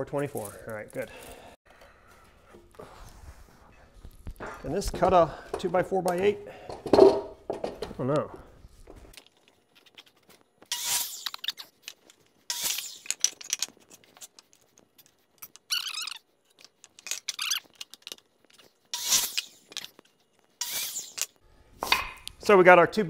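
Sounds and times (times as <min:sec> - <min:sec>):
lumber scraping and squeaking: 0:09.8 - 0:21.4.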